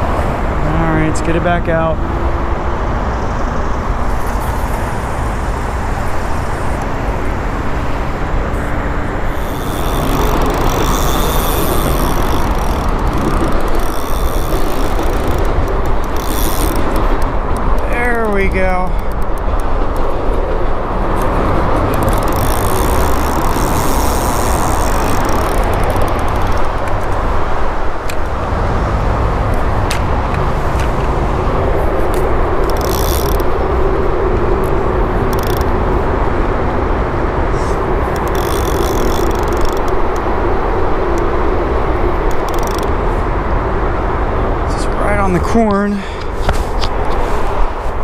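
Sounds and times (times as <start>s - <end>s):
road traffic rumble: 0.0s - 48.0s
high-pitched whirring bursts: 9.2s - 20.2s, 21.2s - 26.9s.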